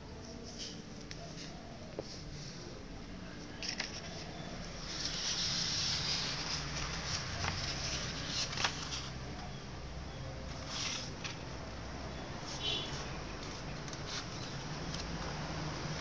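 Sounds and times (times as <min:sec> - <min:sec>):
paper rustling and crackling: 0:03.4 - 0:09.5, 0:10.4 - 0:11.5, 0:12.4 - 0:16.0.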